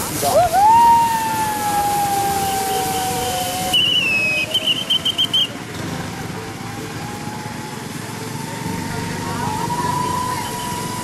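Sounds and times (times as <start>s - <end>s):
woman whooping: 0.2s - 4.7s, 9.1s - 11.0s.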